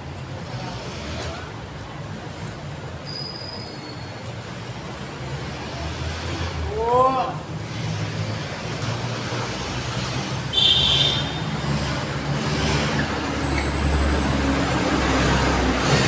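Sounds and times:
traffic rumble: 0:00.0 - 0:16.0
short high squeal: 0:03.0 - 0:04.3.

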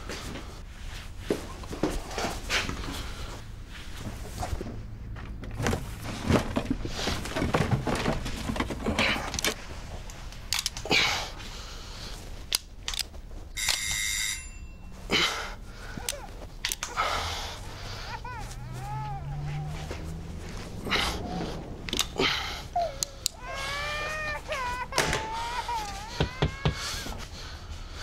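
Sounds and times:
clicks knocks and rustles of handling: 0:05.2 - 0:10.9.

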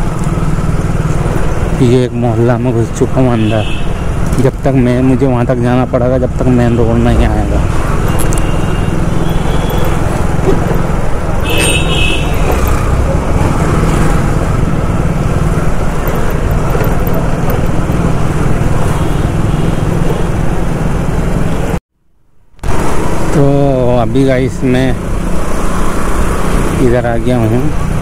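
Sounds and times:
city street traffic: 0:00.0 - 0:21.8, 0:22.4 - 0:28.0
road noise: 0:00.0 - 0:28.0
motorcycle engine running: 0:07.6 - 0:21.7
high horn toot: 0:11.4 - 0:12.6.

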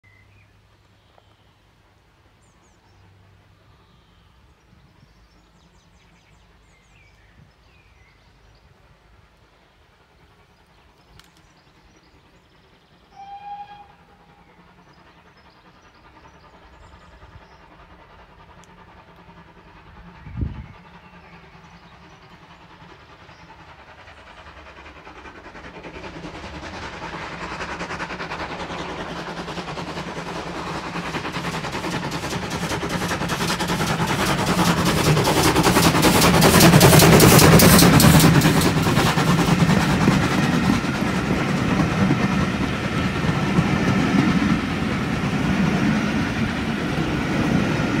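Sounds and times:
steam locomotive exhaust beats: 0:00.2 - 0:48.0
steam whistle: 0:13.1 - 0:14.4
train wheels clattering over rail joints: 0:22.3 - 0:48.0.

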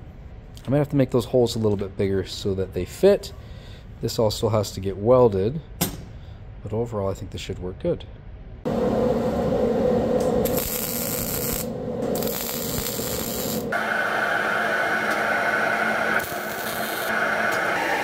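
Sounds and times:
low hum: 0:08.2 - 0:18.0
welder arc crackling: 0:08.8 - 0:13.9, 0:15.0 - 0:18.0.

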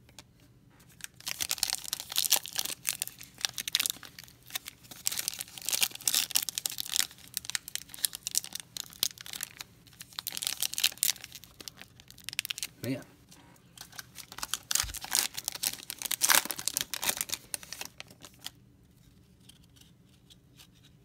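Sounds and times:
foil wrapper crinkling and tearing: 0:00.9 - 0:12.7, 0:13.8 - 0:18.6.

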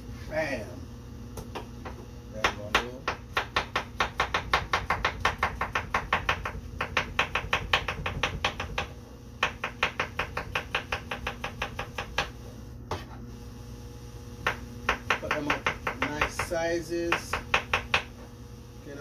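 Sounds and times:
knife chopping on wooden board: 0:01.5 - 0:12.3, 0:14.4 - 0:16.5, 0:17.1 - 0:18.1.

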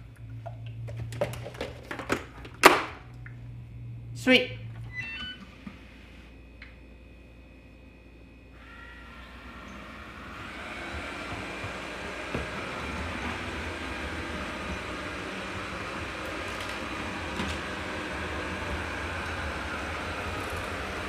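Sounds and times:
robot vacuum whirring hum: 0:08.6 - 0:21.0.

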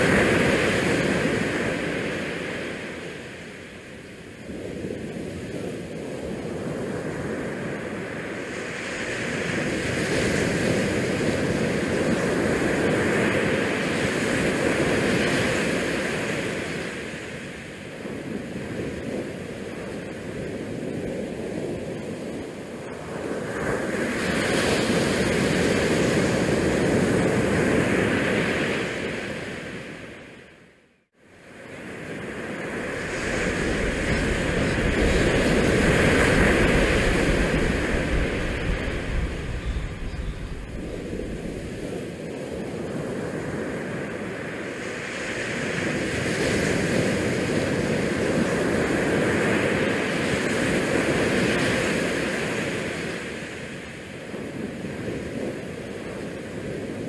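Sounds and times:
wind buffeting microphone: 0:31.8 - 0:51.5.

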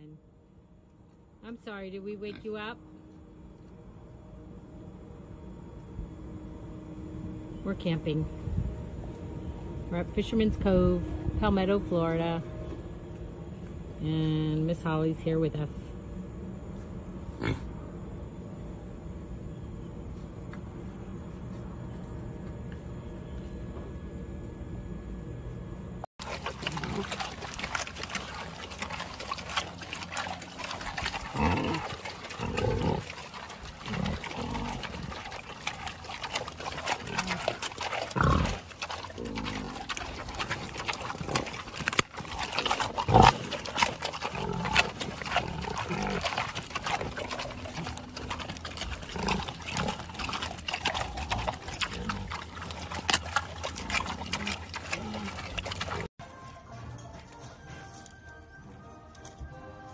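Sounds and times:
pig grunts: 0:17.4 - 0:17.7, 0:26.2 - 0:56.1
pigs crunching carrots: 0:26.2 - 0:56.1.

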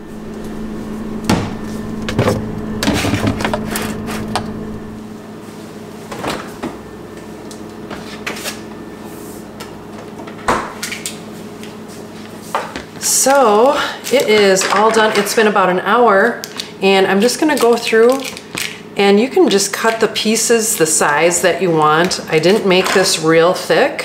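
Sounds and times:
low steady hum: 0:00.0 - 0:08.0
refrigerator door shutting: 0:00.6 - 0:05.0.

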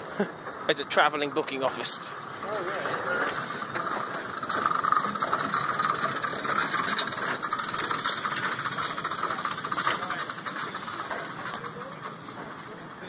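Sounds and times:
train wheels rattling on track: 0:00.0 - 0:13.0.

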